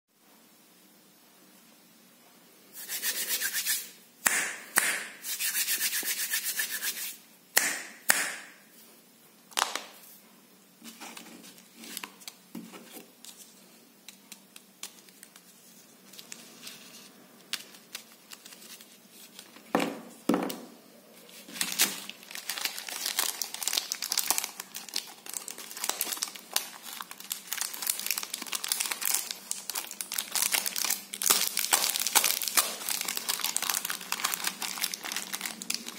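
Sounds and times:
plastic wrappers crinkling: 10.9 - 19.7, 21.2 - 35.9.

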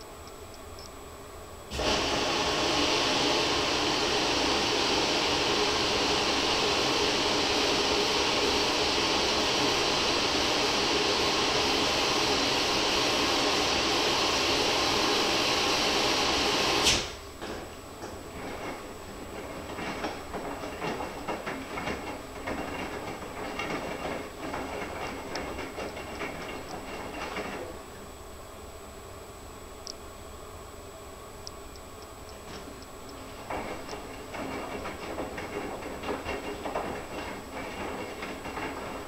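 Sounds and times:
water filling hiss: 1.7 - 17.3.

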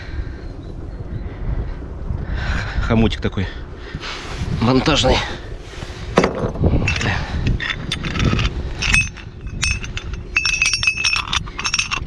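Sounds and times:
metal anchor clinking and rattling: 6.2 - 12.0.

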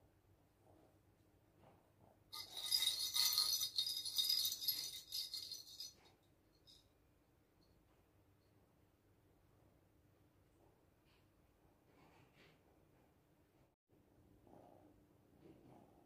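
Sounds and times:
toy balls with bells jingling: 2.3 - 6.8.

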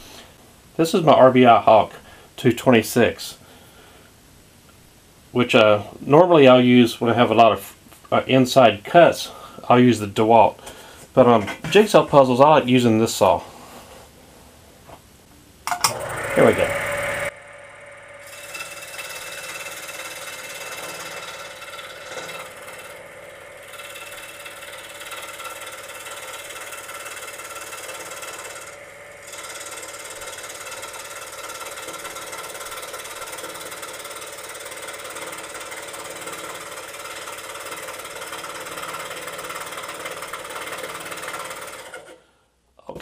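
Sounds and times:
scroll saw cutting wood: 15.8 - 42.2.

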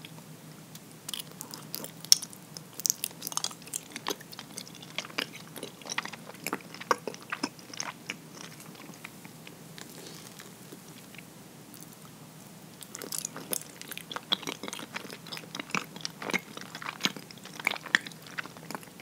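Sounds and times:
chewing mouth clicks: 12.8 - 19.0.

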